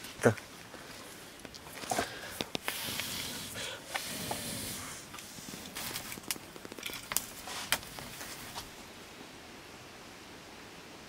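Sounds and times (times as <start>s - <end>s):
wood fire crackling: 0.0s - 8.9s
fire hissing: 1.8s - 8.8s.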